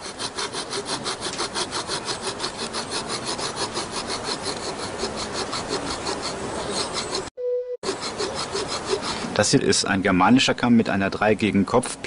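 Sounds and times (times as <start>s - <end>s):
hand saw cutting bone: 0.0s - 9.4s.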